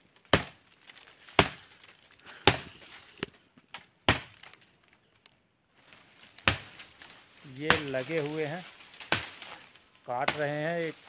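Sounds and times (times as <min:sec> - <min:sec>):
blade chopping woody brush: 0:00.0 - 0:00.6, 0:01.2 - 0:04.6, 0:06.3 - 0:11.0.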